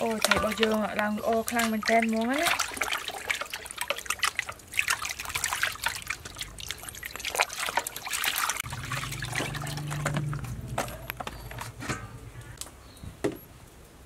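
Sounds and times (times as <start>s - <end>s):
water sloshing and splashing in a basin: 0.0s - 12.5s
low steady hum: 8.6s - 13.0s.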